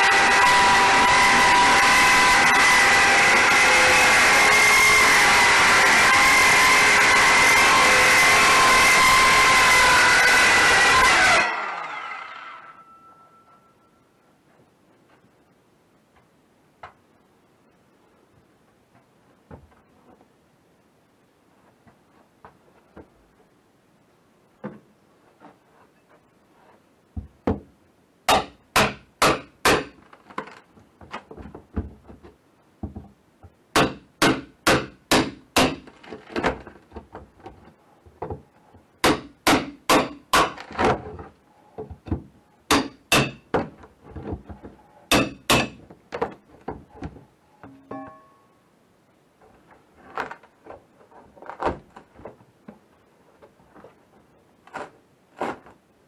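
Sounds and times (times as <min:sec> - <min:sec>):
hammer striking drywall: 0:28.3 - 0:30.0, 0:33.7 - 0:35.9, 0:39.0 - 0:40.6, 0:42.1 - 0:43.8, 0:45.1 - 0:45.8.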